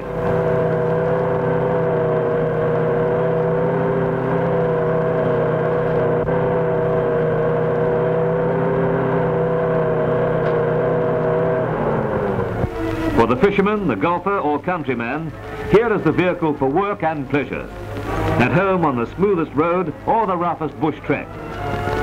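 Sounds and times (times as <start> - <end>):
engine whine: 0.0 - 22.0
truck engine droning: 0.0 - 22.0.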